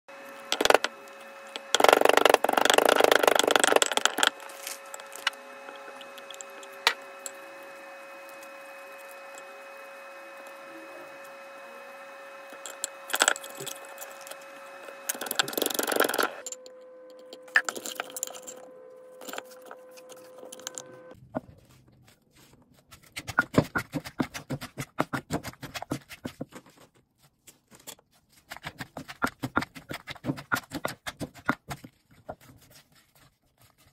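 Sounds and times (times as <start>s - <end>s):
background hum: 0.1s - 26.3s
spatula scraping a mortar: 1.5s - 7.4s
pestle pounding in a mortar: 1.6s - 4.4s, 23.2s - 26.4s, 28.6s - 31.9s.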